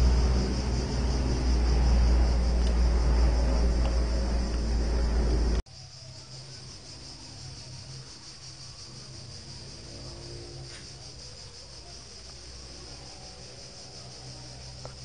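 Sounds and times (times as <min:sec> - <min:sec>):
low hum: 0:00.0 - 0:05.6.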